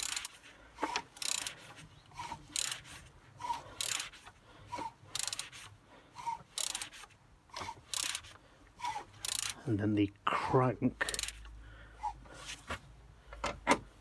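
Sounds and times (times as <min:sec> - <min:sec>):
ratchet wrench clicking: 0:00.0 - 0:00.4, 0:01.2 - 0:01.6, 0:02.5 - 0:02.9, 0:03.8 - 0:04.2, 0:05.1 - 0:05.5, 0:06.5 - 0:07.0, 0:07.8 - 0:08.4, 0:09.2 - 0:09.6, 0:11.0 - 0:11.5.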